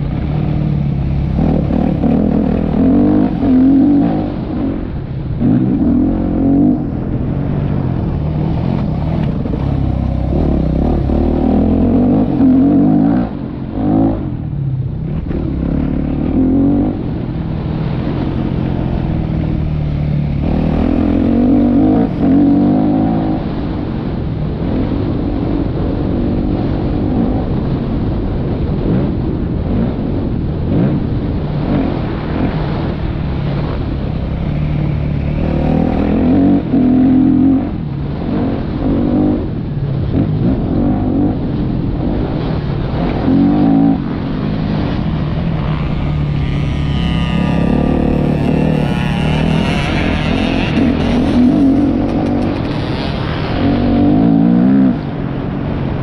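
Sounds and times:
motocross bike engine revving: 0.2s - 14.4s, 18.1s - 23.8s, 33.6s - 37.8s, 42.4s - 55.2s.

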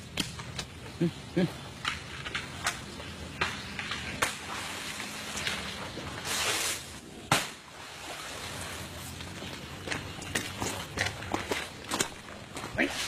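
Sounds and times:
dry palm fronds snapping: 3.4s - 7.6s.

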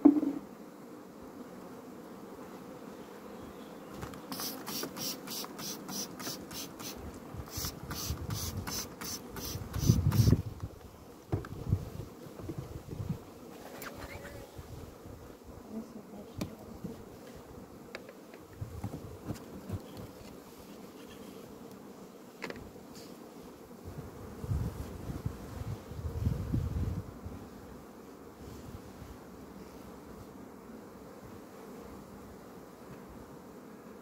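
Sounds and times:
wooden hive frames knocking: 0.0s - 0.4s
honeybees buzzing: 0.0s - 34.0s.

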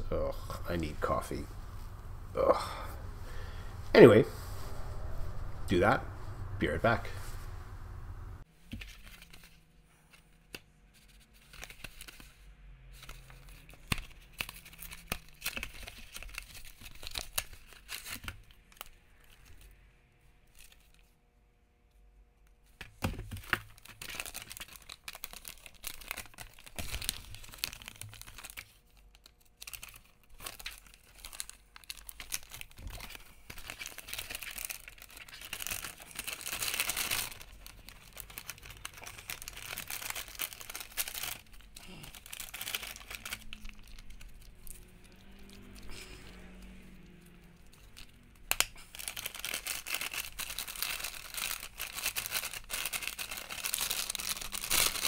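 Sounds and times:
foil packaging crinkling and tearing: 11.1s - 19.6s, 23.2s - 55.0s.

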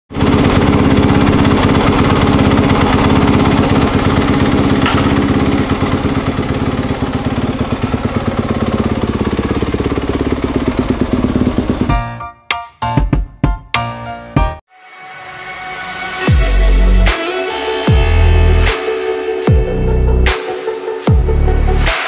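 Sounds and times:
dirt bike engine running: 0.1s - 12.2s.

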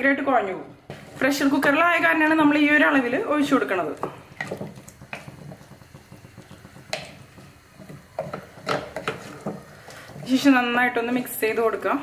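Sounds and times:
soft sloshing of stirred food: 3.8s - 10.5s.

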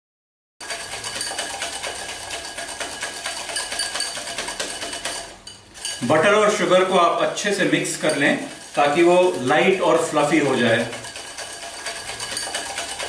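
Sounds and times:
whisk clicking against glass bowl: 0.6s - 13.0s.

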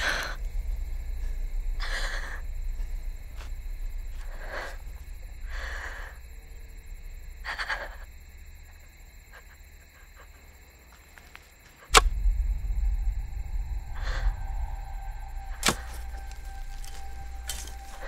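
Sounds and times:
person breathing hard: 0.0s - 8.2s, 13.5s - 18.0s
low rumble: 0.0s - 10.1s, 11.9s - 18.0s.

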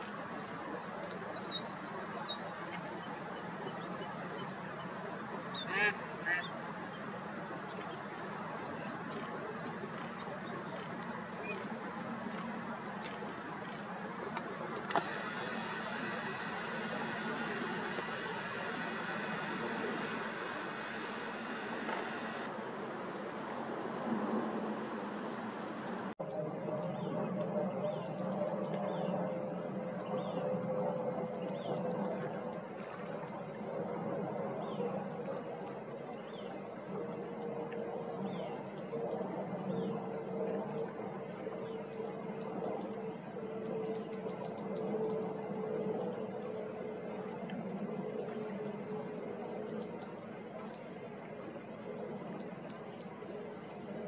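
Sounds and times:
outdoor background hiss: 0.0s - 26.2s
steady background hum: 0.0s - 26.5s
thin high steady tone: 3.0s - 26.2s
sharp click: 14.9s - 22.5s.

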